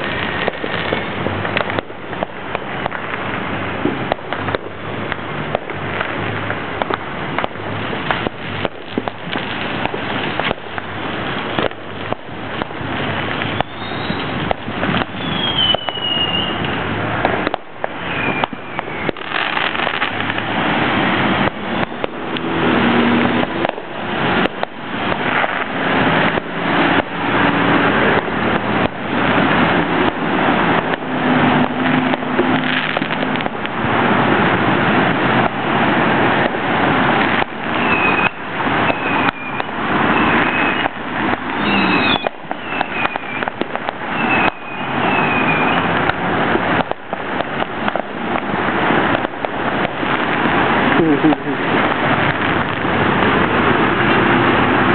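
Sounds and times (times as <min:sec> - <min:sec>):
fireworks bangs and pops: 0:00.0 - 0:54.9
high falling whistles: 0:13.5 - 0:14.3, 0:15.1 - 0:16.6, 0:18.0 - 0:19.1, 0:37.8 - 0:40.9, 0:41.6 - 0:43.4, 0:44.1 - 0:45.9.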